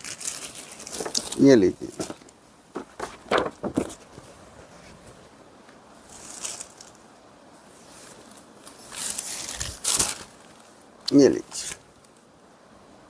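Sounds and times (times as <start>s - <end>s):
fabric rustling: 0.0s - 5.4s, 6.0s - 7.0s, 7.6s - 10.8s.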